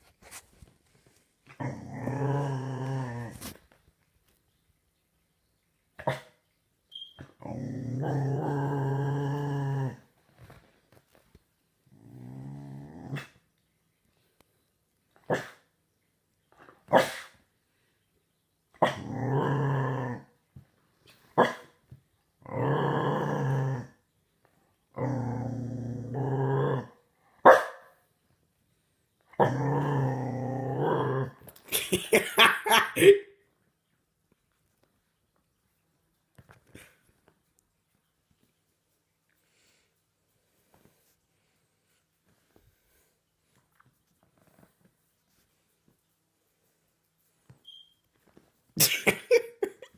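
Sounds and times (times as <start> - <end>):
puppy growling: 1.5 - 3.6, 7.4 - 10.6, 11.8 - 13.4, 18.8 - 20.4, 22.4 - 24.0, 24.9 - 27.0, 29.4 - 31.6
puppy barking: 27.4 - 27.9.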